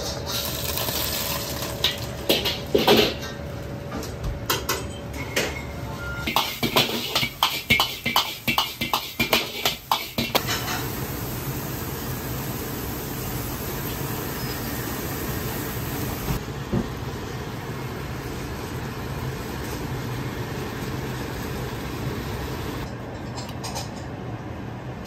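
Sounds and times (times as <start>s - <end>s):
gas burner running: 0.0s - 4.1s, 6.3s - 22.9s
steel ladle clattering against wok: 6.3s - 10.9s.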